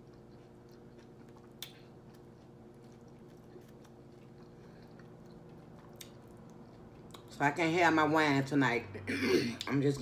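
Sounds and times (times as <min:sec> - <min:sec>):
quiet chewing: 0:00.0 - 0:07.4.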